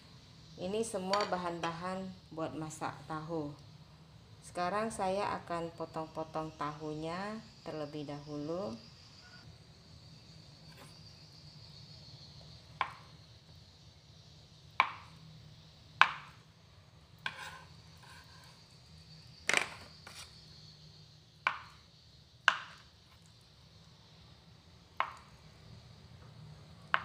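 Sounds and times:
knife cutting tofu: 17.2s - 18.6s.

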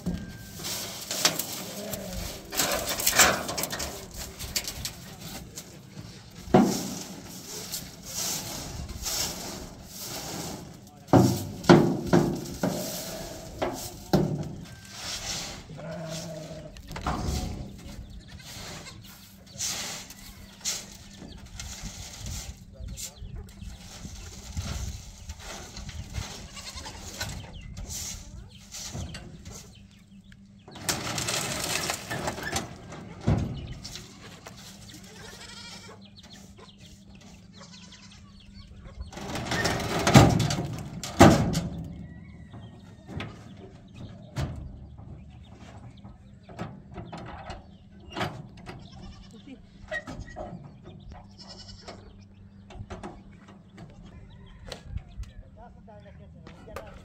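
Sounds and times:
broom sweeping grit on steel: 6.6s - 11.6s, 12.5s - 14.1s, 14.8s - 16.5s
goats bleating: 15.6s - 17.0s, 18.2s - 19.2s, 26.2s - 27.2s, 33.8s - 36.1s, 37.5s - 38.4s, 48.8s - 50.4s, 51.2s - 52.2s.

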